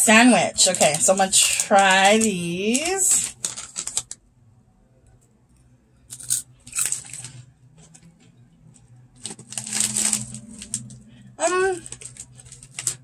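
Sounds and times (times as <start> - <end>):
crunchy snack being chewed: 6.1 - 8.4.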